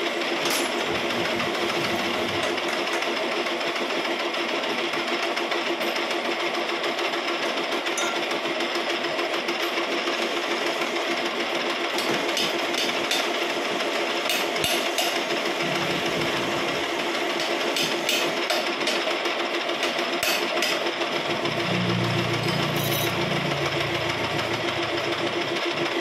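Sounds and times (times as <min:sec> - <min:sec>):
metal lathe humming: 0:15.5 - 0:18.3, 0:21.1 - 0:26.0.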